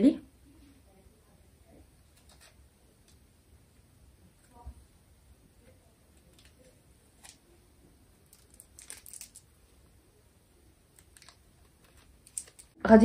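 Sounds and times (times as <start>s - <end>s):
tape peeling off skin: 2.2s - 2.6s, 8.2s - 9.5s, 10.9s - 12.8s.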